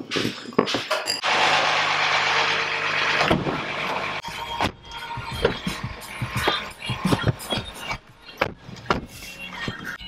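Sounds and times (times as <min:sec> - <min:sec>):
mechanical hum: 0:01.0 - 0:08.8.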